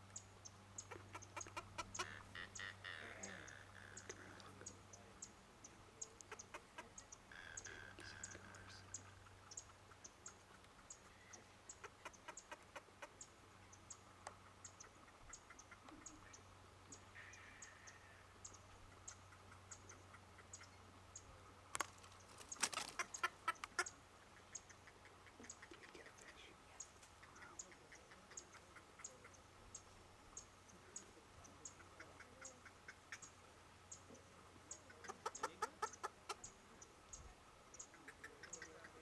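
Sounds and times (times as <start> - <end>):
high bird ticks: 0.0 - 39.0
short bird calls: 14.6 - 20.8.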